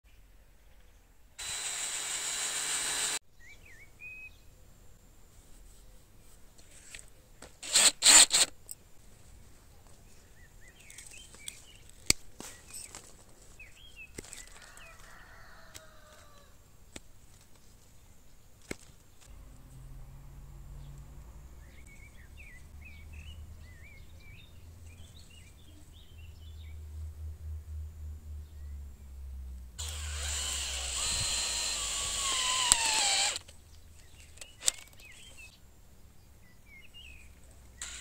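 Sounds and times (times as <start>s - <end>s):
cordless drill drilling wood: 1.4s - 3.2s, 7.6s - 8.5s, 29.8s - 33.5s
sharp clicks: 29.8s - 35.4s
birds chirping: 29.8s - 38.0s.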